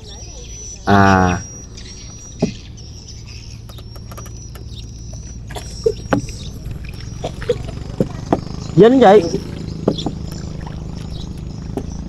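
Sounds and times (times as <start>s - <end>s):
steady low hum: 0.0s - 12.0s
paddle dipping and dripping: 1.4s - 12.0s
paddle knocking against hull: 9.3s - 12.0s.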